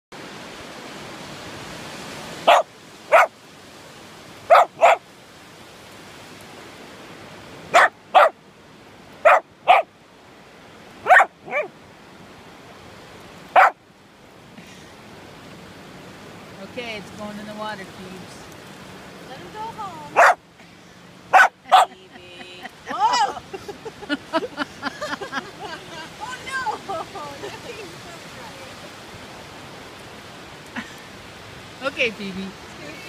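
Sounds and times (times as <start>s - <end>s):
background hiss: 0.3s - 33.0s
dog barking: 2.4s - 3.3s, 4.5s - 5.0s, 7.7s - 8.4s, 9.2s - 9.9s, 11.0s - 11.7s, 13.5s - 13.8s, 20.2s - 20.4s, 21.3s - 22.0s.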